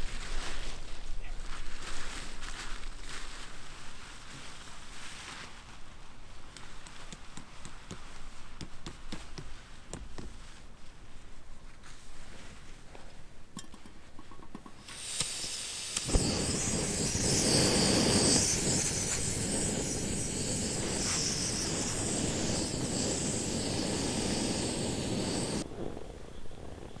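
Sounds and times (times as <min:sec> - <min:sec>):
gas hissing from valve: 0:14.2 - 0:27.0
sharp pop of ignition: 0:14.5 - 0:25.9
burner flame rushing: 0:14.8 - 0:27.0.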